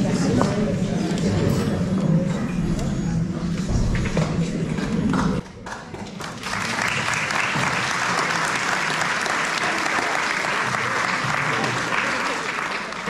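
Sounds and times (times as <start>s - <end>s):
audience clapping: 5.1s - 13.0s.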